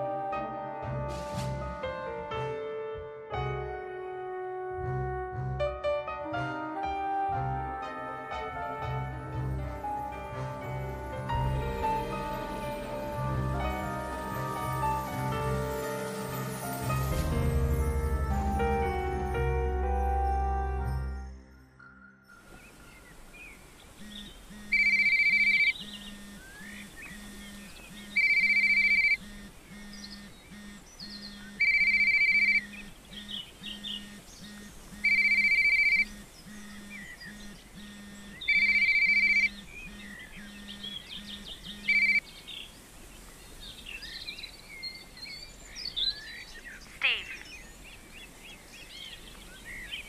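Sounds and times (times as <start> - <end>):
low buzzing pulse: 7.9 - 15.8, 23.1 - 42.2
phone ringtone two-tone beep: 28.2 - 30.8, 31.5 - 33.3, 34.0 - 36.6, 37.4 - 40.0.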